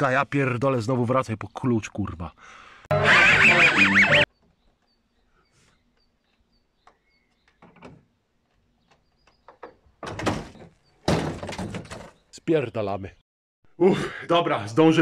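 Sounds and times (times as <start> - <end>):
small bird chirping: 4.3 - 7.8, 8.6 - 9.8
metal clicks and knocks: 6.8 - 12.2.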